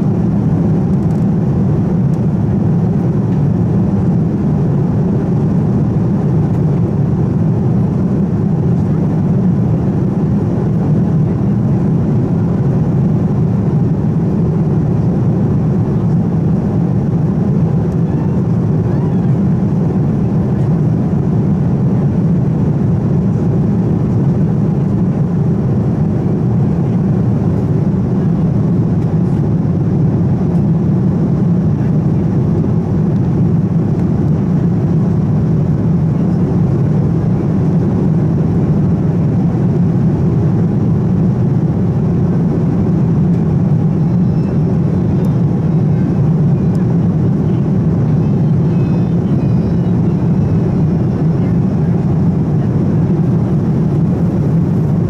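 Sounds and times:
airliner cabin drone: 0.0 - 55.0.

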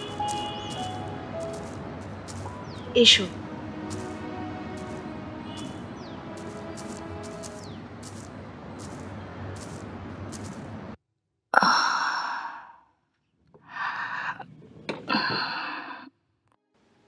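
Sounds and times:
steady background noise: 0.0 - 11.0.

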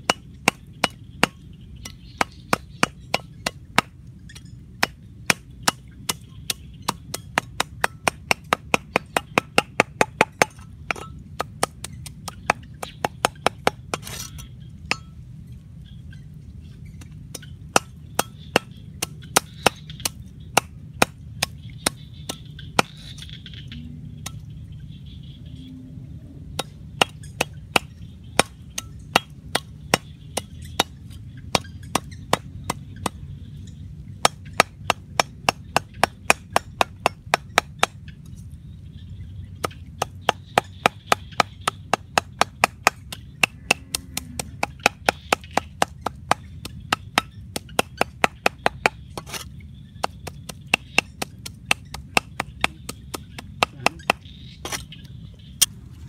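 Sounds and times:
cleaver chopping on wooden block: 0.0 - 3.9, 4.8 - 15.1, 17.3 - 23.2, 26.6 - 33.2, 34.2 - 38.0, 39.6 - 54.9.

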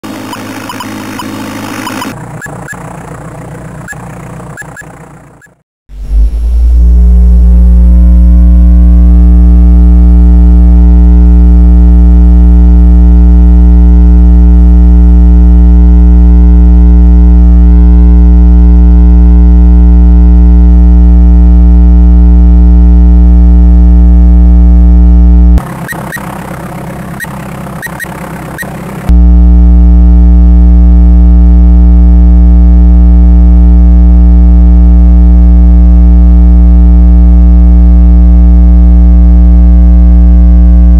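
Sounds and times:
synthesizer drone: 0.0 - 40.9.

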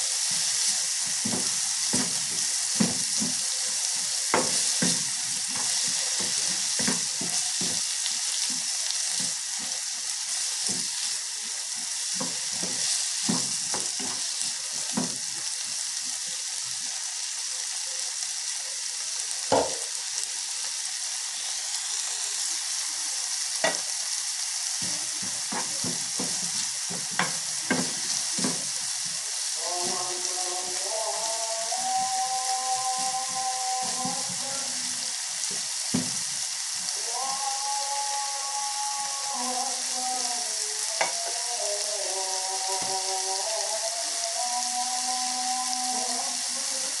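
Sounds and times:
spatula scraping a pan: 0.0 - 15.2, 24.8 - 30.8
vegetables sizzling in a frying pan: 0.0 - 47.0.

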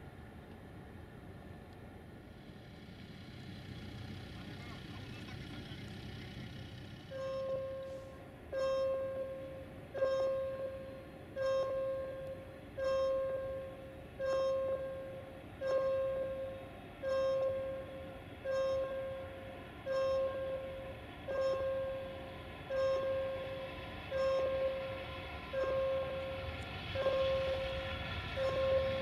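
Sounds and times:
level crossing warning bell: 7.1 - 29.0.

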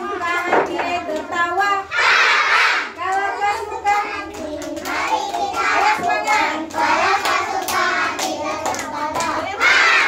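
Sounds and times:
children singing: 0.0 - 10.0
hands clapping: 4.0 - 10.0.

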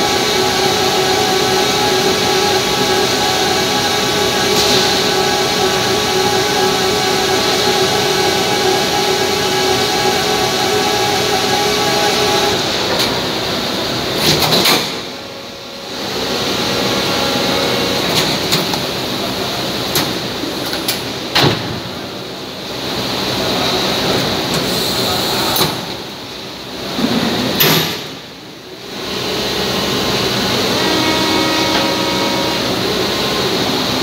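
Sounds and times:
machine humming and hissing: 0.0 - 34.0
machine clunks and knocks: 21.3 - 21.9.

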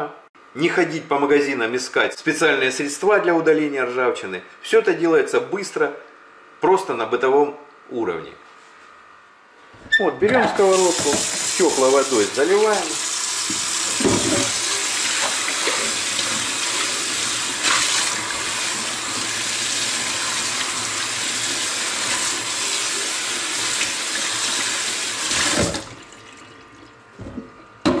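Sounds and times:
tap water running onto skillet: 10.7 - 26.7.

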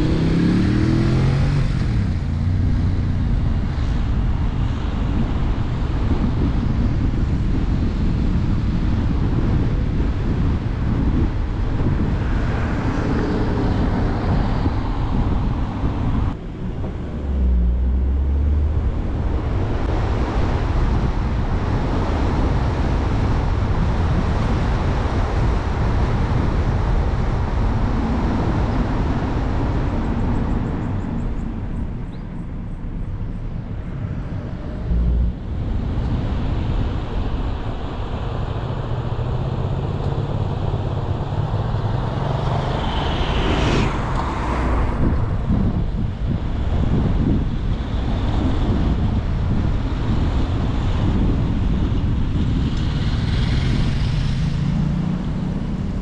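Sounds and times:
car tyre and road noise: 0.0 - 56.0
wind over microphone: 0.0 - 56.0.

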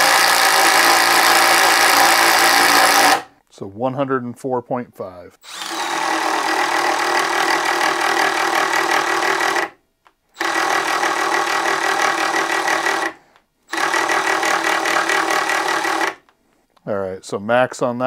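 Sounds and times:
impact driver driving screw: 0.0 - 3.3, 5.4 - 9.8, 10.4 - 16.3.

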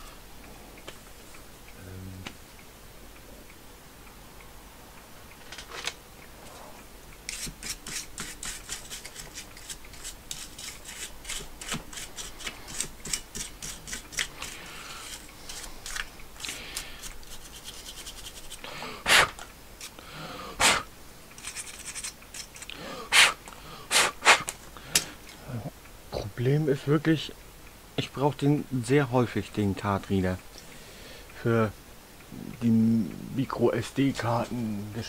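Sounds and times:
brush scrubbing circuit board: 7.3 - 18.6, 21.4 - 22.7.

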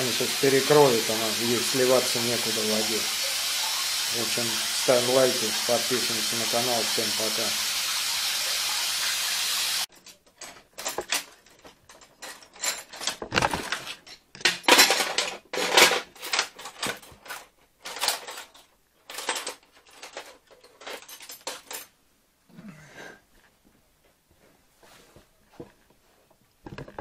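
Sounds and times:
water spraying from pipe leak: 0.0 - 9.9
irregular clicks and knocks: 9.9 - 21.9, 26.6 - 27.0.

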